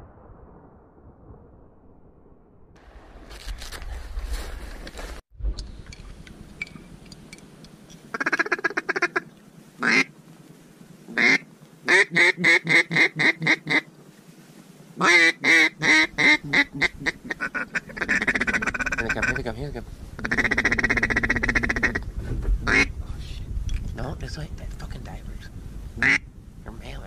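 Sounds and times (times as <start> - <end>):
duck quacking: 9.8 - 10.1, 15.0 - 19.5, 20.2 - 22.0.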